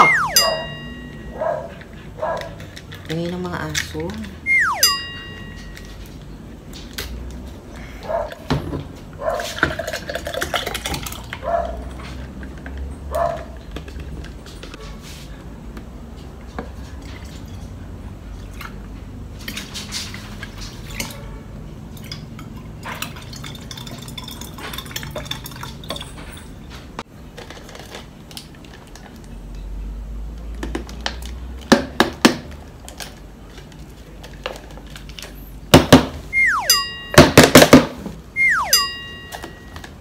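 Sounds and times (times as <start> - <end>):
liquid pouring into a jug: 9.6 - 11.4, 22.0 - 26.2.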